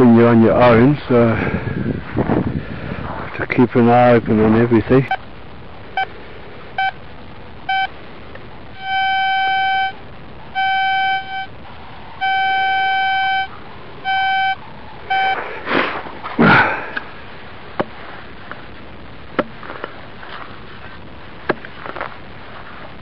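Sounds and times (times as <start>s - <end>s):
metal detector beeping: 6.8s - 7.0s, 7.6s - 7.9s, 8.8s - 11.6s, 12.2s - 15.5s
rustling scrapes: 15.2s - 16.5s, 19.5s - 23.0s.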